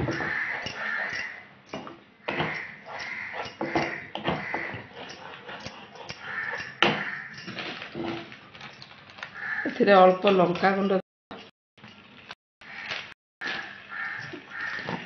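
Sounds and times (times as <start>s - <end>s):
wooden spatula scraping a pan: 2.3s - 8.4s.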